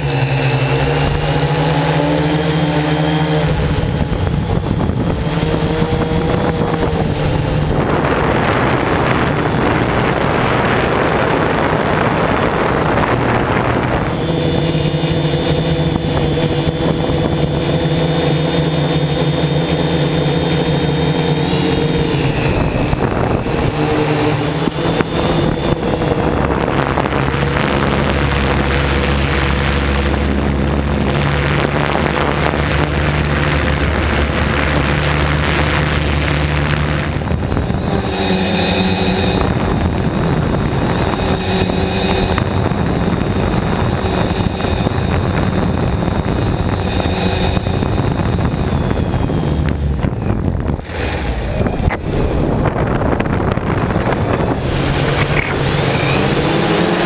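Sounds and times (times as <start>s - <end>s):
drone motors whining: 0.0s - 57.0s.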